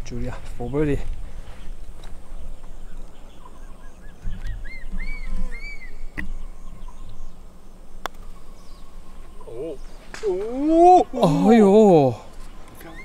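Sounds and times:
bird calling rising notes: 0:01.5 - 0:13.0
putter striking golf ball: 0:08.0 - 0:08.4.

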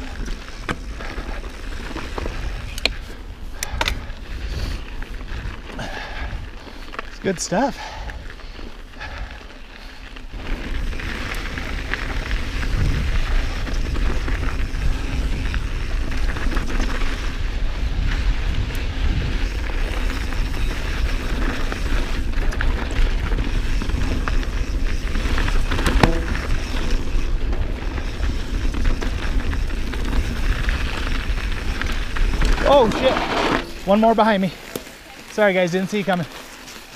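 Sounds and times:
wind rumble on microphone: 0:00.0 - 0:06.8, 0:10.3 - 0:33.9
tyres rattling over dirt and rocks: 0:19.2 - 0:36.9.

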